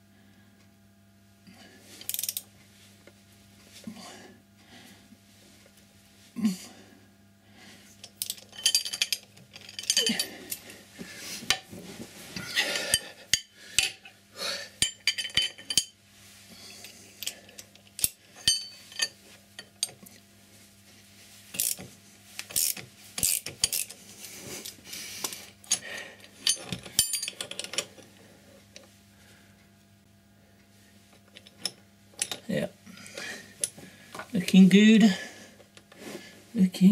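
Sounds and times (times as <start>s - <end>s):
ratchet spanner clicking: 2.1s - 2.4s, 21.6s - 21.8s, 22.5s - 24.0s.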